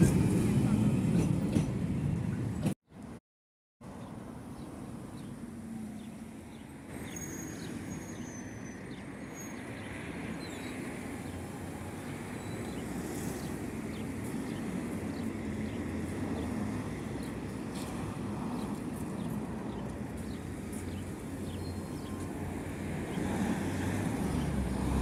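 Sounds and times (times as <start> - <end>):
buses rumbling past: 0.0 - 2.8, 3.9 - 25.0.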